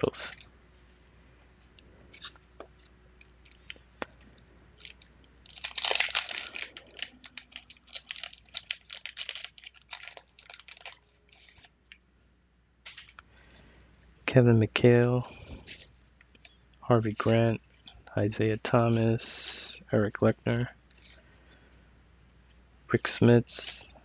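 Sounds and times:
wrapper crackling and crinkling: 2.1s - 12.0s
loud wrapper rip: 4.8s - 11.7s.

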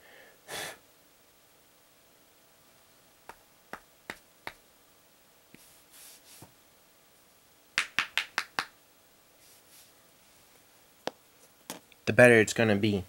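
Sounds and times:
faint hisses: 5.5s - 6.6s, 9.3s - 10.9s.

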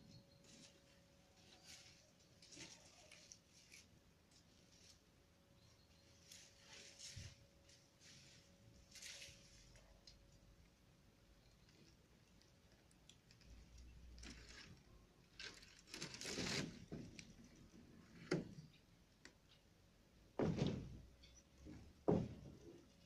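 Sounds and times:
scraping rustles: 0.4s - 5.1s, 6.1s - 9.8s, 14.1s - 18.6s
knocks: 20.4s - 22.7s.

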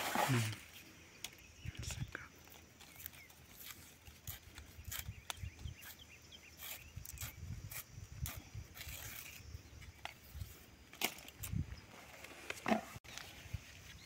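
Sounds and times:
plant fibre crackling and snapping: 2.4s - 6.0s.

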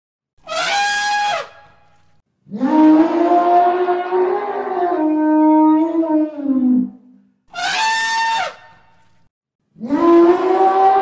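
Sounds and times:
elephant trumpeting: 0.5s - 1.6s, 7.5s - 8.6s.

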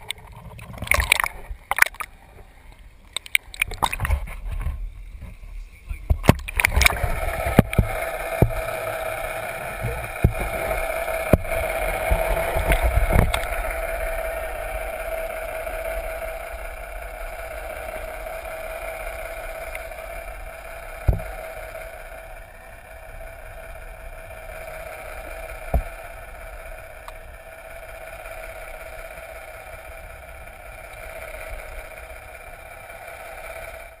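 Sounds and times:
sharp clicks and knocks: 0.0s - 2.1s, 3.1s - 5.4s, 6.0s - 8.6s, 9.8s - 13.6s
boat engine drone underwater: 0.0s - 34.0s.

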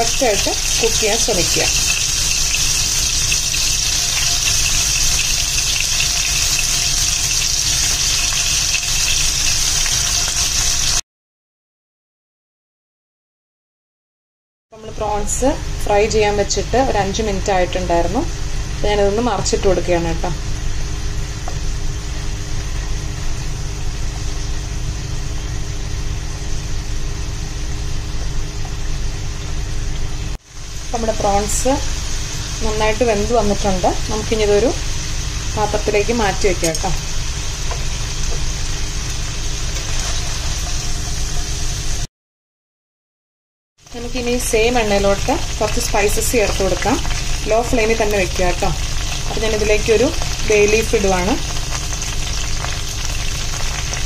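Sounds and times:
low hum and rumble: 0.0s - 10.6s, 14.8s - 42.1s, 43.9s - 54.0s
prawns sizzling in oil: 0.0s - 11.0s, 20.6s - 42.1s, 43.8s - 54.0s
spatula turning food: 37.6s - 41.4s.

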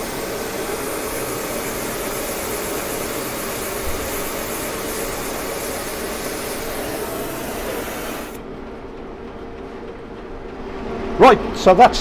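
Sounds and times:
torch flame hissing: 0.0s - 8.4s
machine hum: 0.0s - 11.7s.

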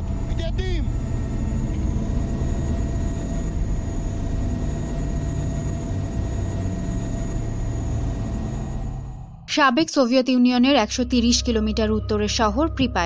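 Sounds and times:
helicopter engine and rotor rumble: 0.0s - 9.4s
faint constant whine: 0.0s - 13.0s.

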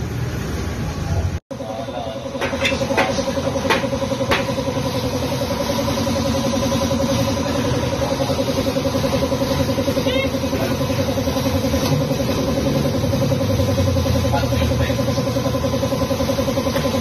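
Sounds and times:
motor pulsing hum: 1.6s - 17.0s.

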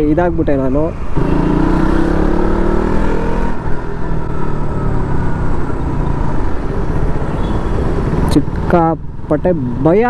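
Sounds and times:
motorcycle engine accelerating: 1.1s - 6.9s.

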